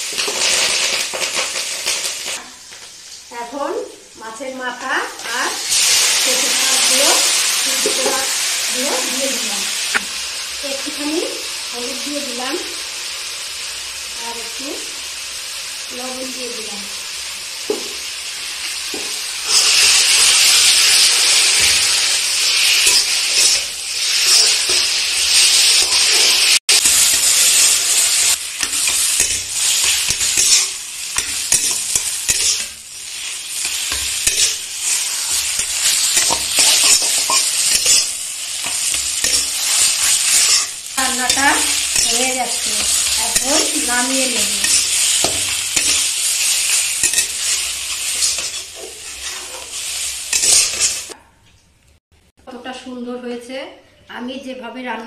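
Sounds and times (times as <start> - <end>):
food sizzling in hot oil: 0.0 - 51.2
metal spatula scraping wok: 19.1 - 51.2.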